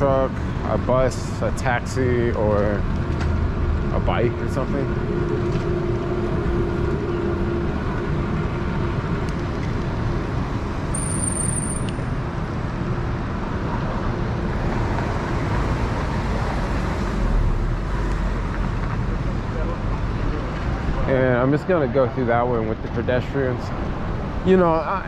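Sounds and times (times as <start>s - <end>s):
city traffic: 0.0s - 25.0s
short high-pitched tone: 11.0s - 12.0s.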